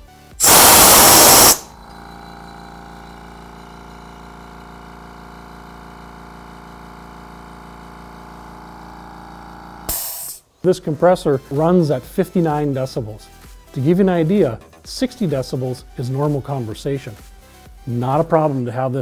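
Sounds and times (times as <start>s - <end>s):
compressed air hissing: 0.4s - 1.8s
air compressor pump humming: 0.4s - 10.4s.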